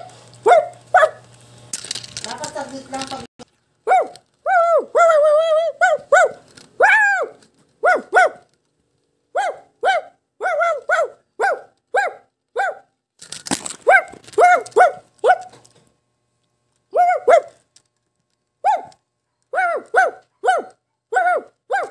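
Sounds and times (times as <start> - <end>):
toy dog barking: 0.0 - 1.3, 3.8 - 8.6, 9.3 - 12.9, 13.8 - 15.6, 16.9 - 17.7, 18.6 - 21.9
handling rustle: 0.1 - 4.4.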